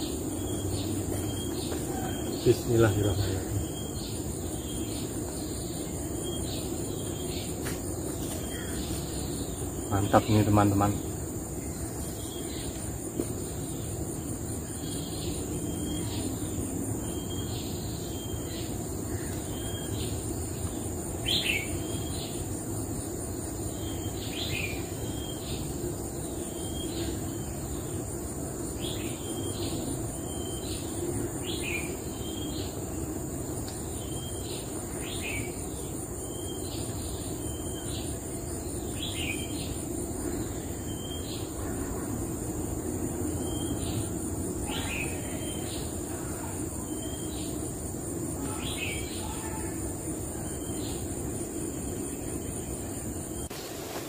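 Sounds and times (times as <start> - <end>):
bird calling: 0.0 - 12.8, 43.4 - 47.6
high-pitched insect drone: 0.0 - 54.0.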